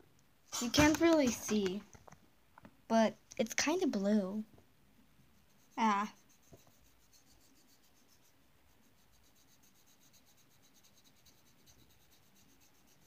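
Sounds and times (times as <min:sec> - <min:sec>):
pencil scratching on paper: 0:05.4 - 0:13.0.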